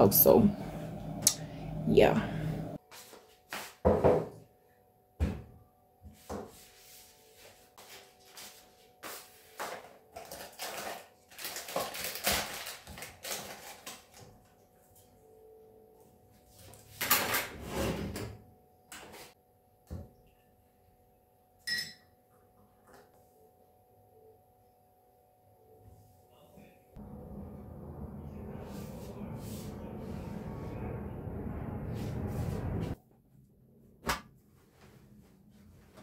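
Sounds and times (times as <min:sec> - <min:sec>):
faint steady hum: 0:00.0 - 0:02.8, 0:27.0 - 0:33.0.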